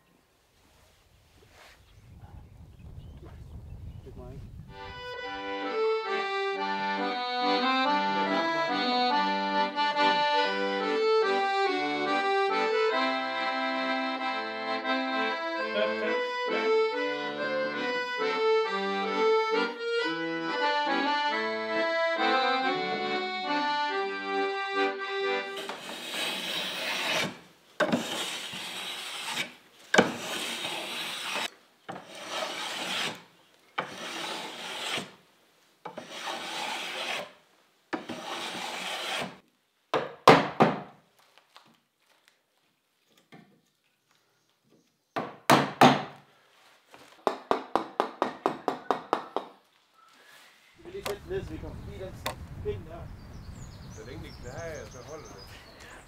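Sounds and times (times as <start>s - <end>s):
accordion music: 4.7s - 27.2s
hand plane shaving wood: 24.8s - 35.2s, 35.9s - 37.4s, 38.0s - 39.4s.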